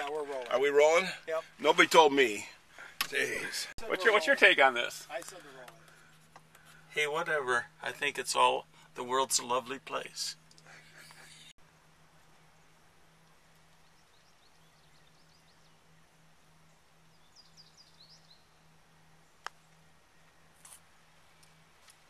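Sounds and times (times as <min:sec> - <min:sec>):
faint bird chirps: 0:12.4 - 0:21.6.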